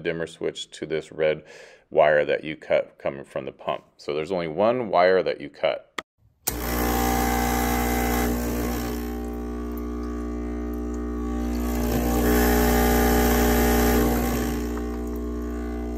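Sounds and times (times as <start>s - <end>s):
espresso machine pump humming: 6.5s - 15.9s
water streaming: 8.6s - 15.9s.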